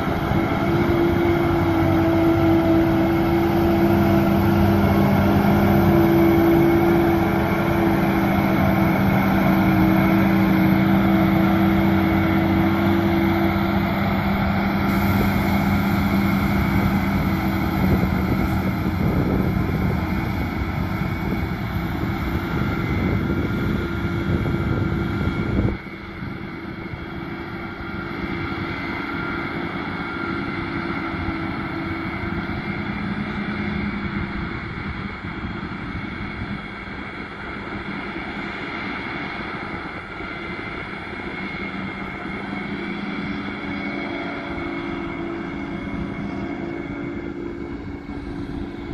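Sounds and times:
low rumble: 0.0s - 28.2s
forage harvester hum and whine: 0.0s - 48.9s
tractor running: 0.0s - 48.9s.

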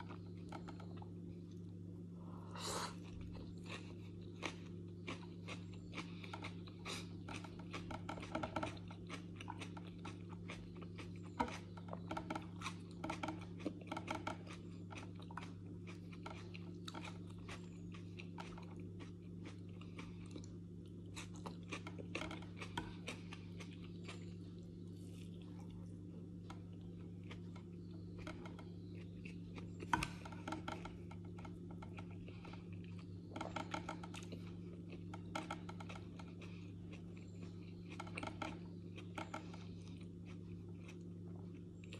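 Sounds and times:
chewing and crunching vegetables: 0.0s - 1.8s, 2.8s - 41.9s
steady low hum: 0.0s - 41.9s.

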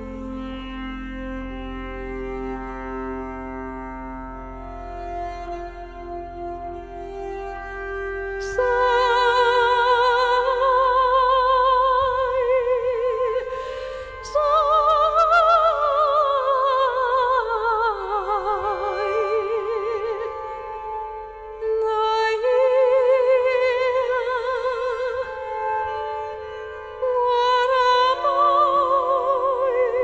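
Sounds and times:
steady string drone: 0.0s - 30.0s
woman singing with vibrato: 8.4s - 20.4s, 21.6s - 25.6s, 27.0s - 30.0s.

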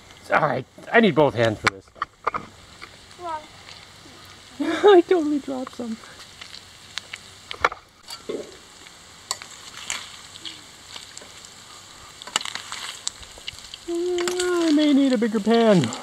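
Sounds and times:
vegetables sizzling in a pan: 0.0s - 16.0s
utensil scraping and clinking: 8.0s - 8.6s, 12.2s - 16.0s.

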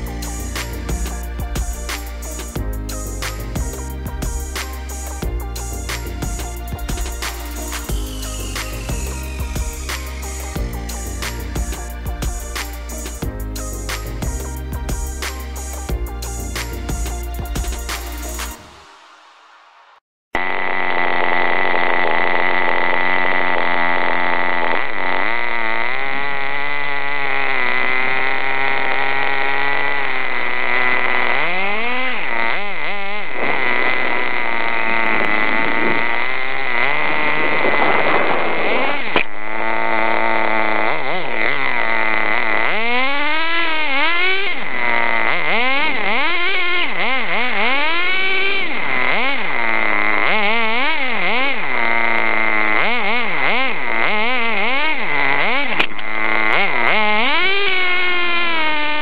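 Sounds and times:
small nitro engine revving: 0.0s - 19.4s, 20.4s - 59.0s
steady high tone: 0.0s - 20.6s.

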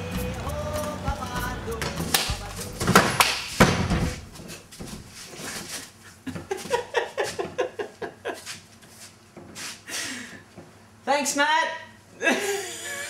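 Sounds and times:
woman laughing: 6.2s - 8.6s, 12.2s - 13.0s.

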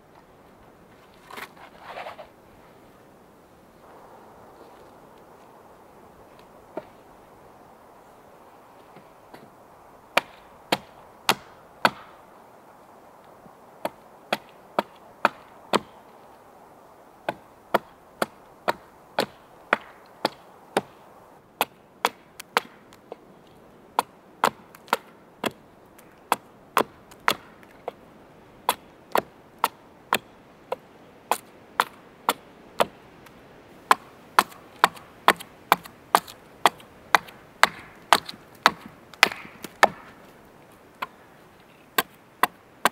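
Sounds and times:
axe chopping wood: 10.1s - 12.2s, 13.8s - 16.0s, 17.3s - 21.0s, 21.6s - 22.9s, 24.0s - 25.6s, 26.3s - 28.0s, 28.7s - 33.0s, 33.8s - 40.3s, 42.0s - 42.9s.

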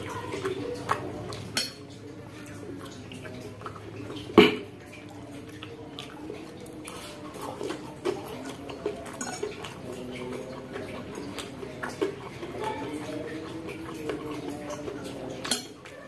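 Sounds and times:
chewing: 0.0s - 16.0s
fork clinking on ceramic bowl: 9.1s - 9.7s, 15.4s - 15.9s.

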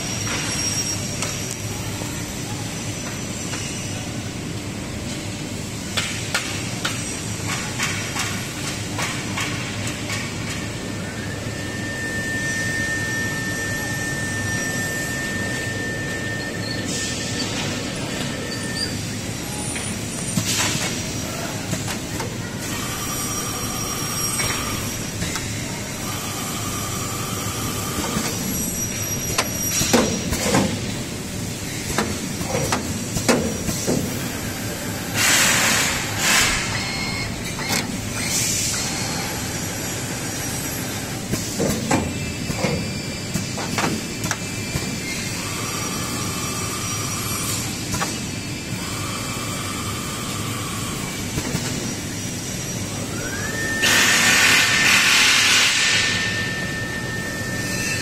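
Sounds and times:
machine motor whine: 10.7s - 20.4s, 21.0s - 33.2s, 33.8s - 58.0s
air hissing: 53.8s - 57.7s.

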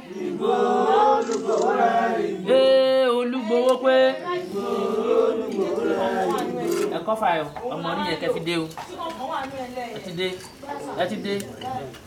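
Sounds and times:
group of voices chanting: 0.0s - 7.1s.

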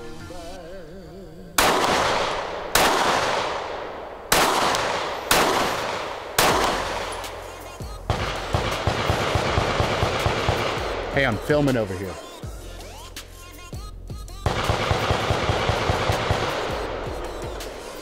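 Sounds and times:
pistol shots: 1.6s - 12.4s, 14.4s - 18.0s.

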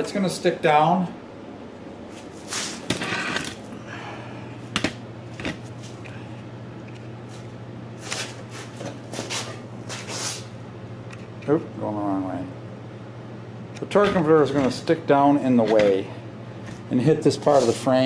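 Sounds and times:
steady low hum: 0.0s - 18.0s
sleeve brushing: 17.5s - 17.9s.

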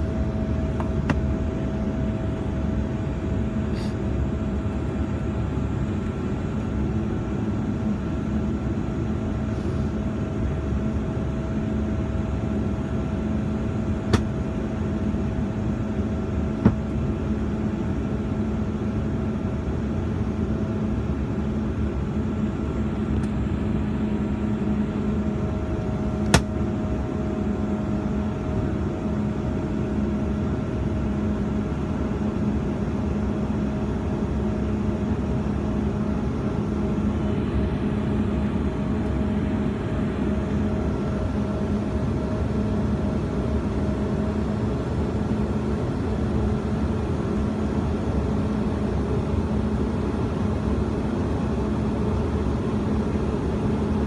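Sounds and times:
jet engine cabin drone: 0.0s - 54.0s.

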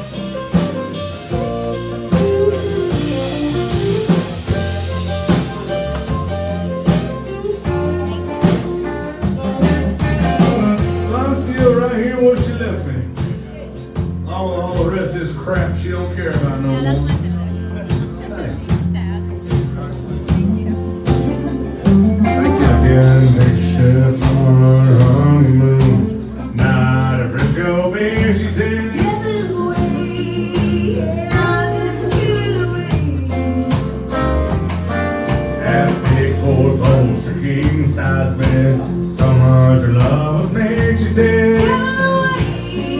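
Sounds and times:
acoustic and electric guitars: 0.0s - 42.9s
drum kit beat: 0.0s - 42.9s
electric bass: 0.0s - 42.9s
fiddle melody: 0.0s - 42.9s
live country band playing: 0.0s - 42.9s
person singing: 21.1s - 34.2s, 35.5s - 42.9s.

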